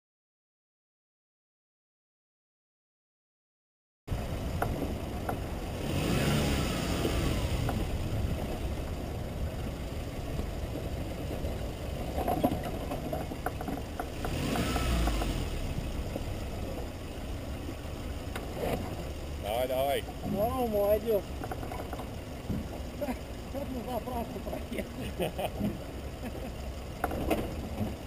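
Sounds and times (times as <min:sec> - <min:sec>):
car engine running: 0:04.1 - 0:28.0
suspension knocks: 0:10.3 - 0:16.3, 0:20.0 - 0:23.0.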